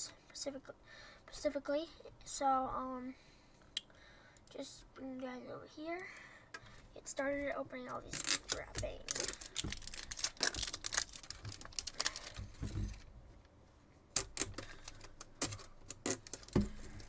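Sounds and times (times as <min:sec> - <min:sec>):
plastic shrink wrap crinkling: 0:07.9 - 0:13.1, 0:14.1 - 0:17.0.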